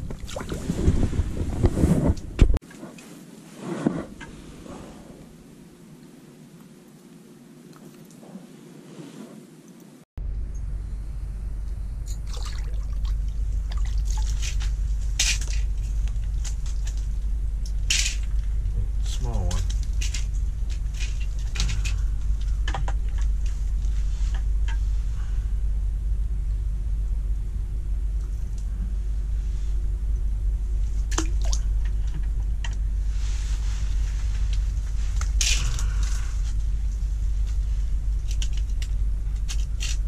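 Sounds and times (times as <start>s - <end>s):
low steady hum: 0.0s - 40.0s
steady low rumble: 0.0s - 40.0s
water splash: 0.1s - 1.0s, 12.1s - 14.6s.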